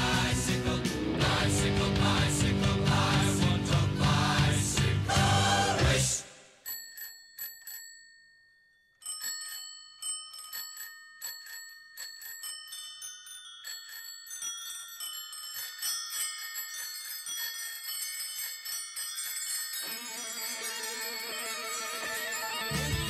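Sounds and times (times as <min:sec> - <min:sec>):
bicycle bells ringing: 0:06.6 - 0:23.0.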